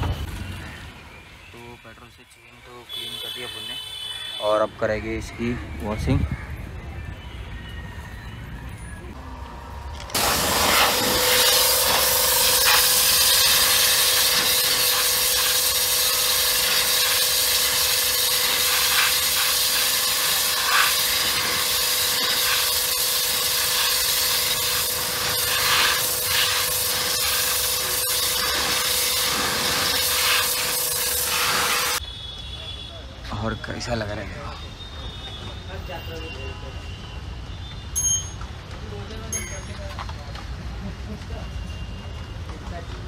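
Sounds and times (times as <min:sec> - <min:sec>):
pressure washer hum: 0:09.2 - 0:32.0
pressure washer spraying water: 0:10.1 - 0:32.0.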